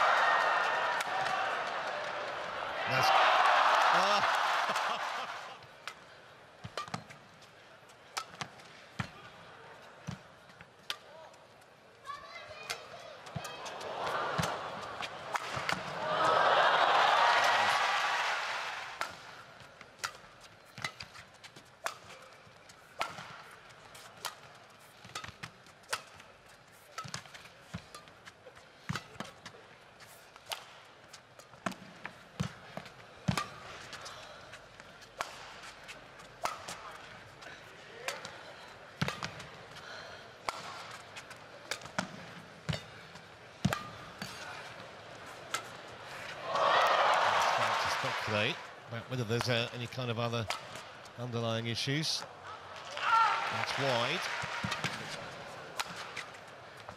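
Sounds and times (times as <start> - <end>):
rackets hitting shuttlecock: 0.0 - 2.4, 5.7 - 7.2, 8.0 - 9.3, 12.6 - 16.3, 18.9 - 29.6, 30.3 - 38.4, 39.0 - 39.8, 40.4 - 48.5, 50.4 - 50.9, 52.8 - 56.9.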